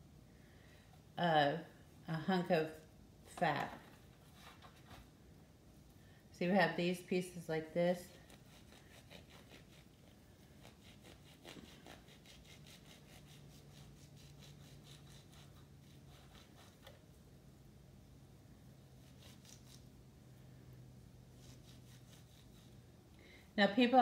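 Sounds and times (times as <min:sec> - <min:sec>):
low steady hum: 0:00.0 - 0:24.0
knife cutting meat: 0:08.3 - 0:17.0, 0:19.0 - 0:19.9, 0:21.3 - 0:22.8.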